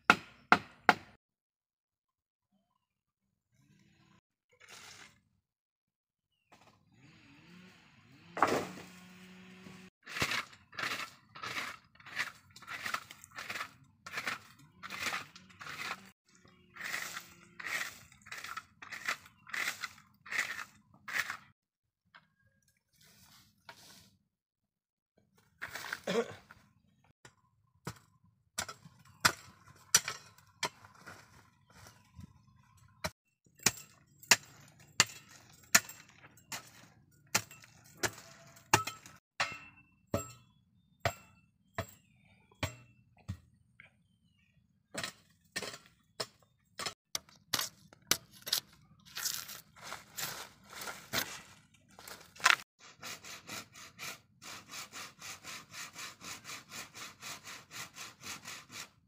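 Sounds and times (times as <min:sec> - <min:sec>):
hand tool chopping wood: 0:00.1 - 0:01.2, 0:08.4 - 0:09.0, 0:10.0 - 0:16.1, 0:27.8 - 0:31.3, 0:33.6 - 0:39.6, 0:52.0 - 0:52.6
hand saw cutting bamboo: 0:08.4 - 0:21.5, 0:37.4 - 0:39.1, 0:52.0 - 0:59.0.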